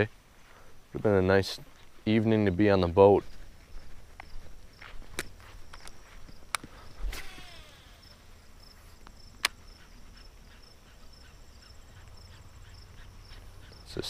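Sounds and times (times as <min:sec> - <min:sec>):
pulsing high chirr: 0:06.8 - 0:08.9
brief falling whir: 0:07.0 - 0:08.2.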